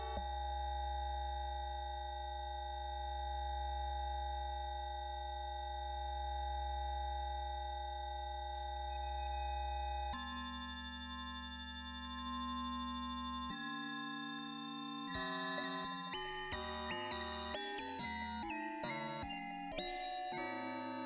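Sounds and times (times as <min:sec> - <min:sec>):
held electronic chord: 0:00.0 - 0:00.2.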